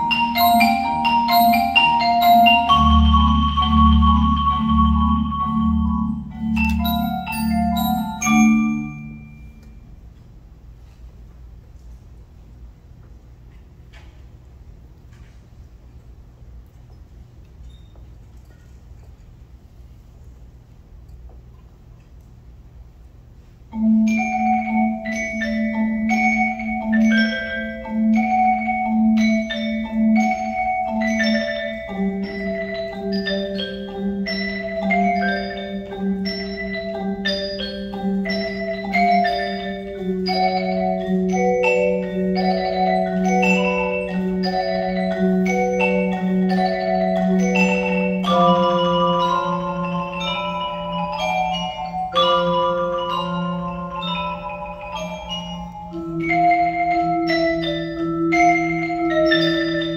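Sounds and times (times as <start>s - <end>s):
mallet percussion ensemble: 0.0s - 10.2s, 23.6s - 59.9s.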